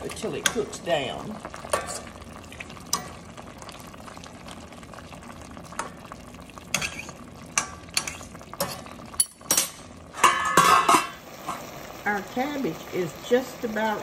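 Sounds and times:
pot simmering hiss: 0.0s - 14.0s.

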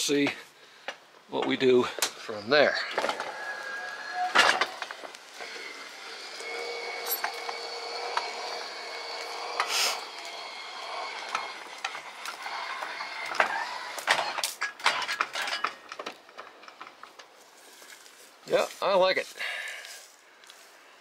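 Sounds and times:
electric motor whine: 2.6s - 14.5s.

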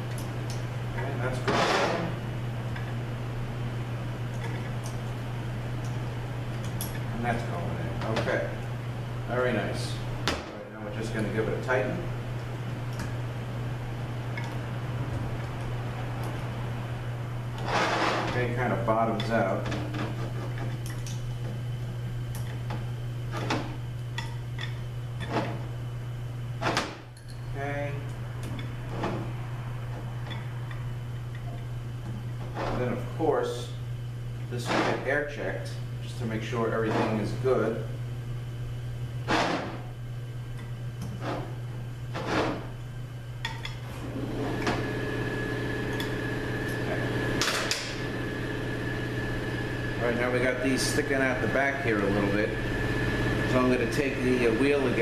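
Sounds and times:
machine drone with faint whine: 0.0s - 55.0s
steady low hum: 0.0s - 55.0s.

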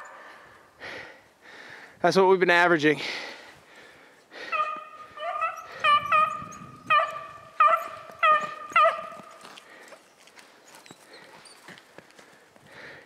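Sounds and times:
hounds baying: 4.4s - 11.8s.

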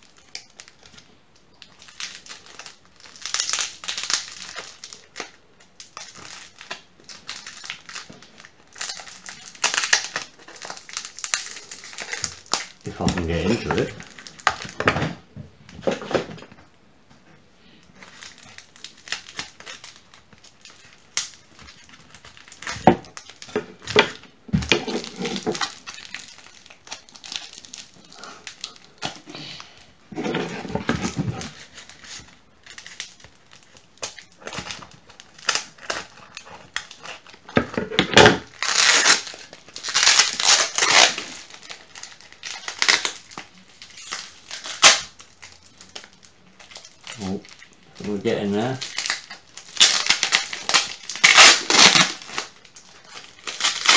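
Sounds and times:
packaging crinkling: 0.0s - 16.6s, 17.6s - 53.9s
packaging tearing: 1.6s - 15.0s, 18.0s - 53.9s.

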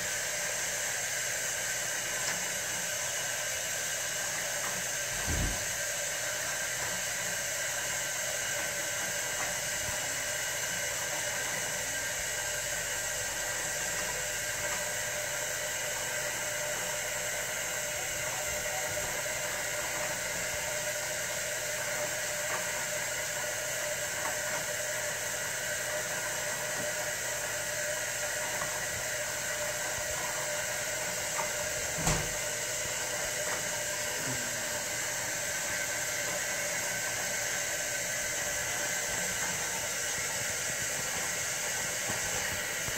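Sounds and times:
water running into aquarium: 0.0s - 42.9s
low thump: 5.2s - 5.8s.

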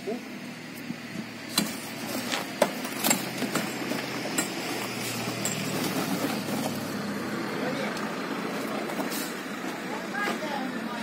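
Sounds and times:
low engine-like hum: 0.0s - 11.0s
bricks tumbling and clinking: 1.6s - 6.9s.

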